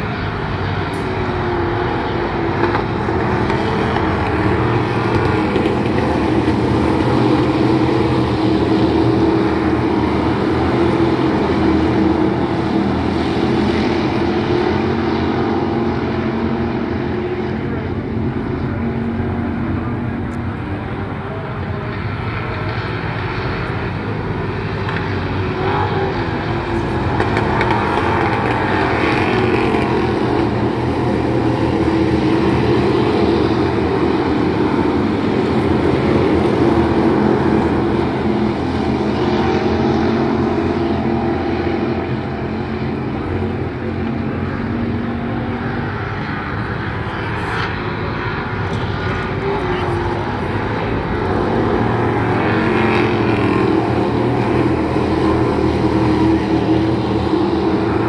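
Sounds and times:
race car engines droning: 0.0 - 58.0.

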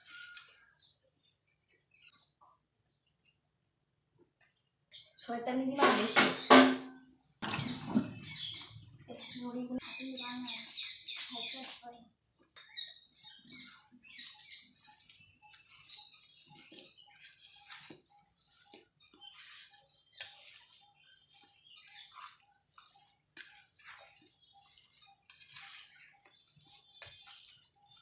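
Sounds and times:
hand squishing mashed banana: 13.9 - 28.0.

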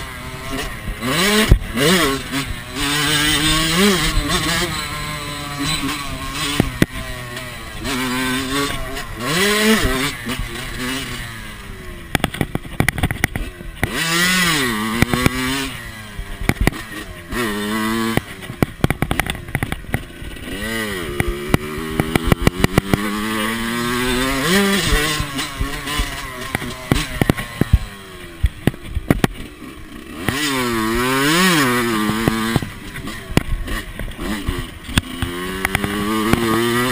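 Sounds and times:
dirt bike engine revving: 0.0 - 36.9
sharp knocks and clatters: 12.1 - 15.6, 16.4 - 29.5, 30.2 - 36.9.

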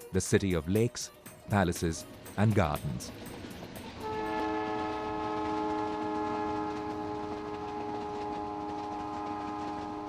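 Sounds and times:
train rumbling: 0.1 - 10.0
train horn blast: 4.0 - 10.0.

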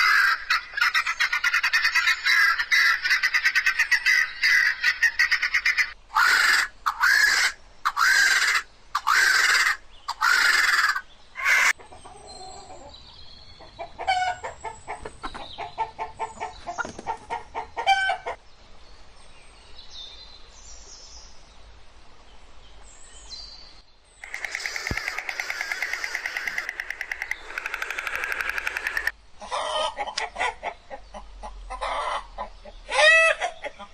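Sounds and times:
guineafowl harsh calls: 0.0 - 11.8, 14.0 - 15.0, 17.3 - 18.4, 24.2 - 30.8, 31.7 - 33.9
chicken clucking: 9.0 - 13.0, 13.6 - 18.4, 24.2 - 33.9
fast repeated bird calls: 24.2 - 29.2.

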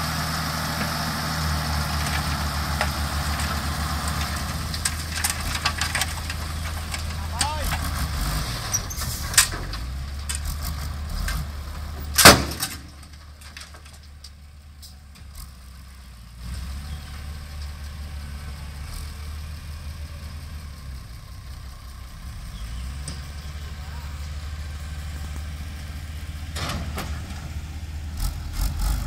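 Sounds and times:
diesel truck engine running: 0.0 - 29.0
soil and rock clattering: 0.6 - 15.4, 25.2 - 29.0.

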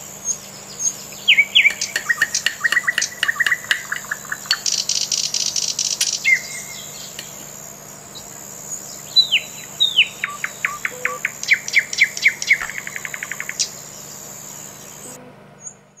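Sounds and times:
high insect-like buzz: 0.0 - 15.8
small birds singing: 0.0 - 16.0.

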